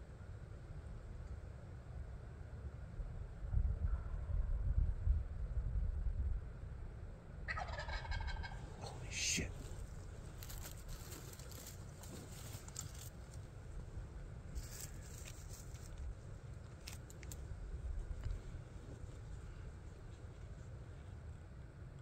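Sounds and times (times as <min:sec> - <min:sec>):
steady low rumble: 0:00.0 - 0:22.0
clothing and gear rustling: 0:10.3 - 0:13.1.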